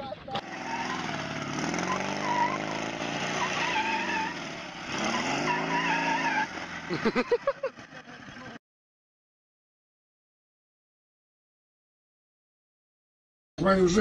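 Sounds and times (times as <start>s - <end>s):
motorcycle engine revving: 0.3s - 8.6s
tyre squeal on asphalt: 0.4s - 6.9s.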